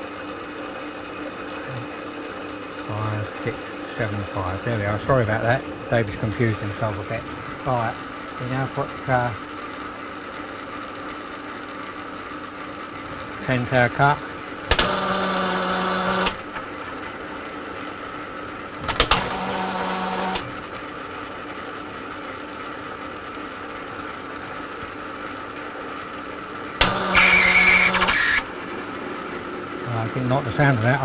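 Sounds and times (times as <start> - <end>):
metal lathe gear whine: 0.0 - 31.0
harsh high cutting whine: 2.8 - 21.2, 25.0 - 31.0.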